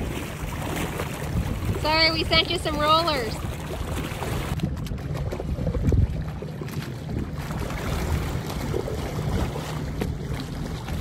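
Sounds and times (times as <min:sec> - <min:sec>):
motorboat engine rumble: 0:00.0 - 0:11.0
wind buffeting microphone: 0:00.0 - 0:11.0.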